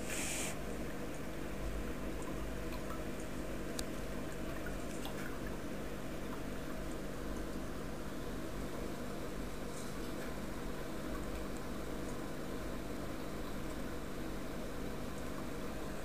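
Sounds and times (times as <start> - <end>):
water filter humming: 0.0 - 16.0
water dripping: 2.1 - 7.6.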